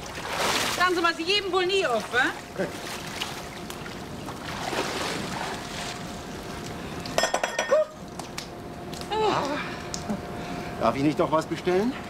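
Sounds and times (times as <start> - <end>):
glass clinking: 7.2 - 7.9.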